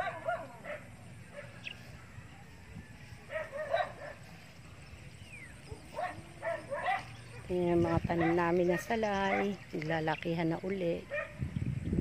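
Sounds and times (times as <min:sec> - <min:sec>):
dog barking and yipping: 0:00.0 - 0:01.6, 0:03.2 - 0:04.4, 0:05.6 - 0:09.6, 0:11.1 - 0:11.4.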